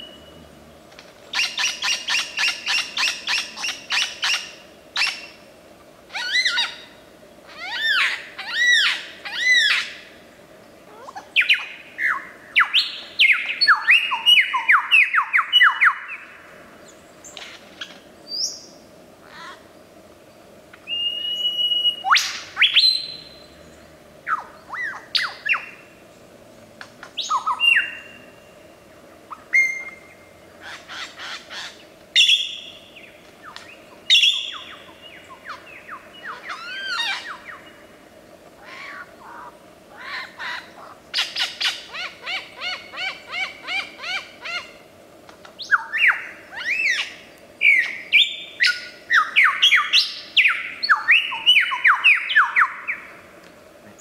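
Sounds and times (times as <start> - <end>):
lyrebird singing varied whistles: 20.8 - 23.5, 27.2 - 28.2, 32.2 - 32.8, 33.5 - 37.7, 45.6 - 53.0.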